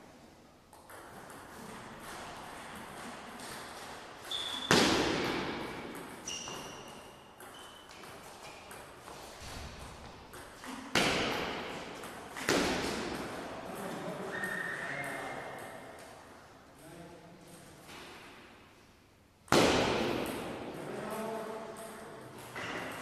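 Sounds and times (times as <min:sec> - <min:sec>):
shoes squeaking on floor: 0:04.2 - 0:04.8, 0:06.2 - 0:09.5, 0:14.2 - 0:15.6.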